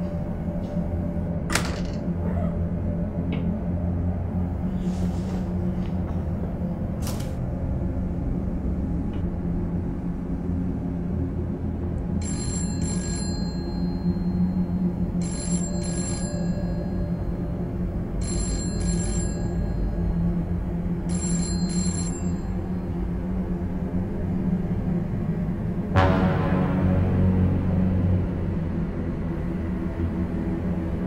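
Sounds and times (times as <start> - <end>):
low dark music drone: 0.0 - 31.0
telephone double rings: 12.2 - 14.2, 15.2 - 17.2, 18.2 - 20.0, 21.1 - 22.7.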